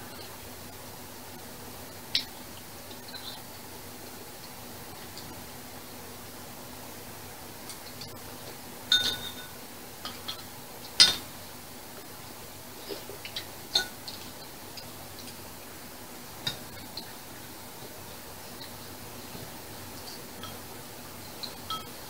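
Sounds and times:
faint steady hum: 0.0 - 22.0
spoons clinking against bowls: 8.9 - 11.2, 13.7 - 14.0, 21.4 - 22.0.

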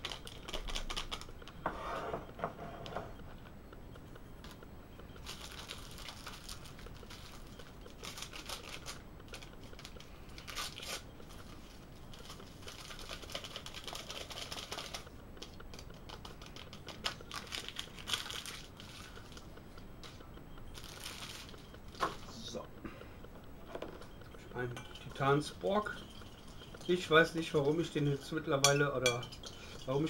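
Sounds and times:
foil sachet crinkling: 0.0 - 1.3, 5.2 - 19.4, 20.7 - 21.6.

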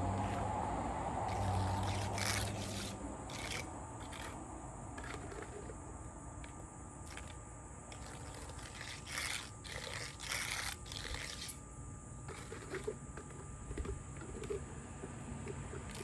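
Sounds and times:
hand tool scraping asphalt: 1.2 - 4.4, 5.0 - 5.8, 7.1 - 11.6, 12.3 - 16.0.

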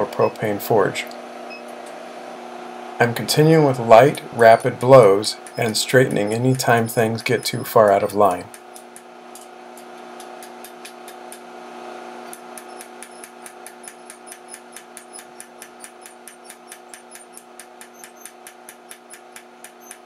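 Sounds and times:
steady hum: 0.0 - 19.7
hammer striking steel on anvil: 12.3 - 20.0.

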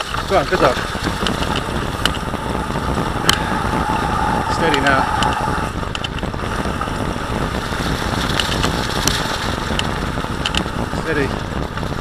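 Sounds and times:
bicycle tyres rumbling on trail: 0.0 - 12.0
wind on microphone: 0.0 - 12.0
light clicks and rattles: 8.2 - 11.9.

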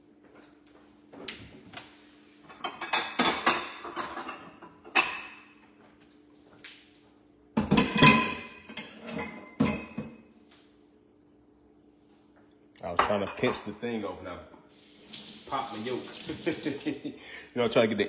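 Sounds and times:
dishes and utensils clattering: 2.4 - 5.6, 7.6 - 10.3.

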